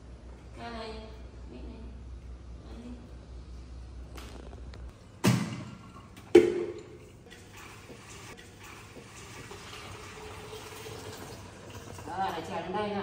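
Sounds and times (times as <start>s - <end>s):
tap water running into sink: 6.2s - 12.5s.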